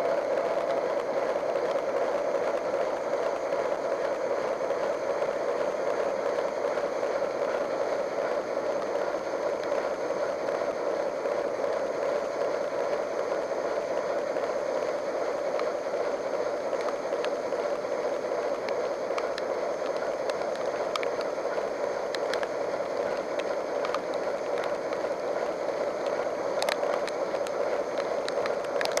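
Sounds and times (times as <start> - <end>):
constant hum: 0.0 - 29.0
locomotive cab running noise: 0.0 - 29.0
sharp ticks: 22.1 - 25.1, 26.0 - 29.0.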